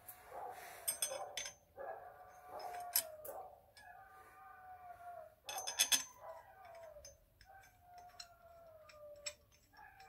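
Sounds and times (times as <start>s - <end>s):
small metal clicks and rattles: 0.8s - 1.6s, 2.4s - 3.9s, 5.5s - 10.0s.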